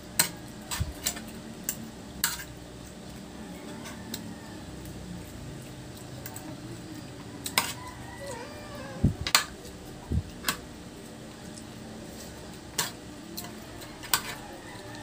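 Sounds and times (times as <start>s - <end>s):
cutlery clinking on metal plates: 7.4s - 7.9s, 12.7s - 14.4s.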